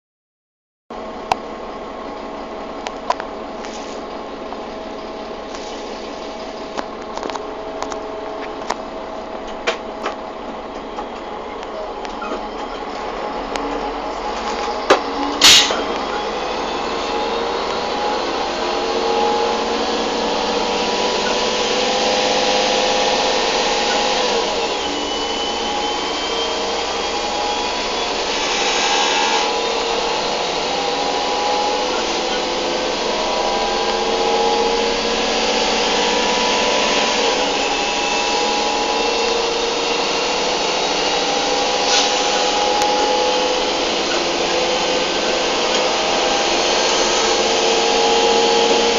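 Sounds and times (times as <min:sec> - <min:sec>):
train running noise: 0:01.0 - 0:48.9
machine whine rising in pitch: 0:10.9 - 0:48.9.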